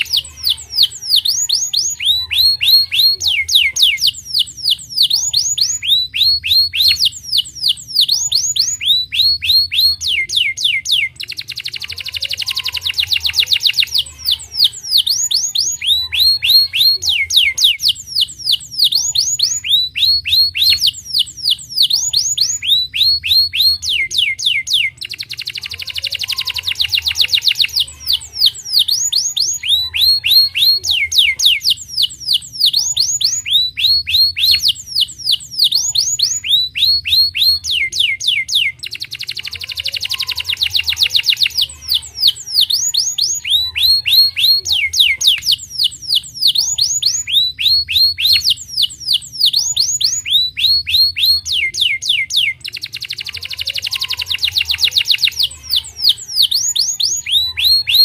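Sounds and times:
canary singing: 0:00.0 - 0:58.0.

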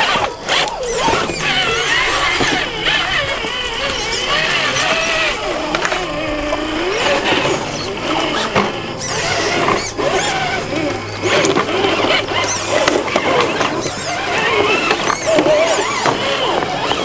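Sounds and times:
rc car electric motor whining: 0:00.0 - 0:17.0.

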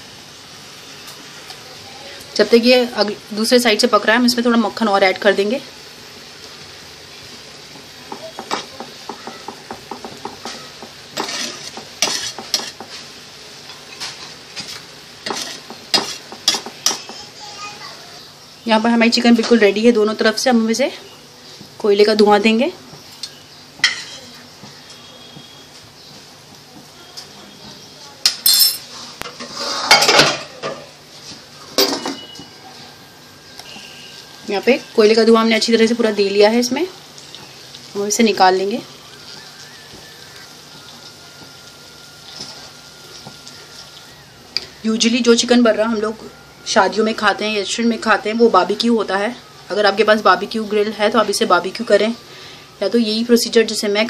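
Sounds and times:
chicken sizzling in a frying pan: 0:00.0 - 0:54.0
metal utensil tapping and scraping pan: 0:08.1 - 0:13.0, 0:13.7 - 0:17.2.

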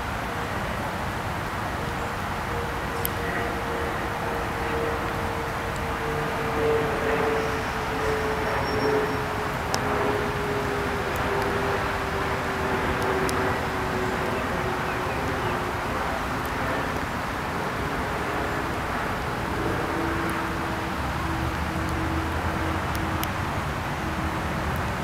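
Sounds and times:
distant traffic rumble: 0:00.0 - 0:25.0
faint droning hum: 0:00.0 - 0:25.0.

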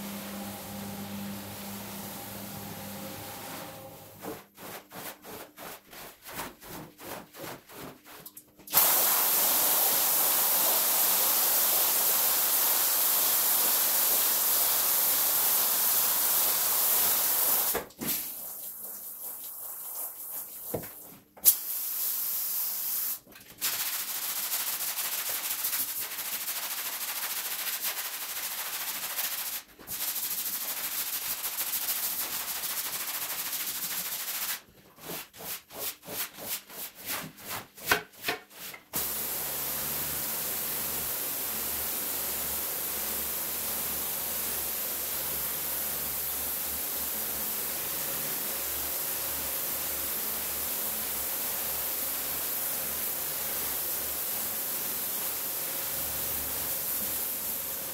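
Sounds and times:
brush scrubbing wet carpet: 0:03.5 - 0:09.0, 0:18.6 - 0:21.2, 0:23.7 - 0:41.0
pressure washer spraying: 0:08.7 - 0:17.8, 0:39.0 - 0:47.4.

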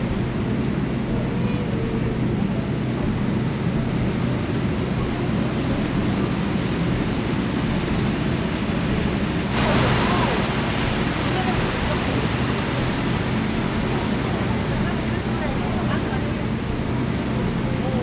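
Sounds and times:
boat engine droning: 0:00.0 - 0:18.0.

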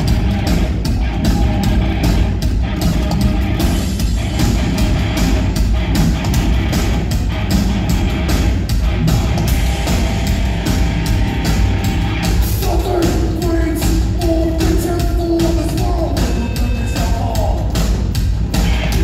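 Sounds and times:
bass guitar: 0:00.0 - 0:19.0
distorted electric guitar: 0:00.0 - 0:19.0
drums driving beat: 0:00.0 - 0:19.0.

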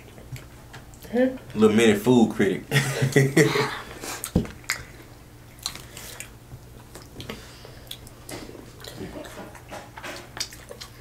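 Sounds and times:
people chewing crunchy tacos: 0:03.6 - 0:11.0.

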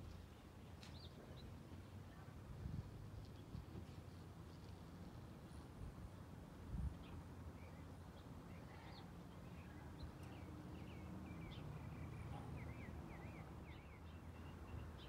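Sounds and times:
small songbirds chirping: 0:00.0 - 0:02.4, 0:06.8 - 0:15.0.

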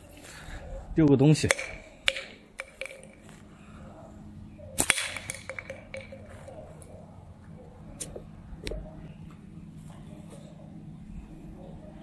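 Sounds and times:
slingshot bands snapping: 0:04.8 - 0:06.6.

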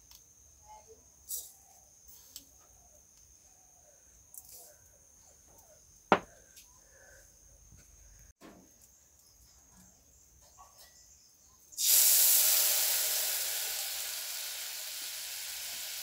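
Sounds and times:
sugar pouring into pot: 0:11.8 - 0:16.0.

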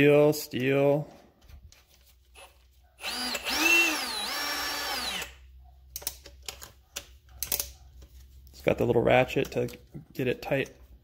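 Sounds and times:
hammer drill motor spinning: 0:02.3 - 0:05.5.

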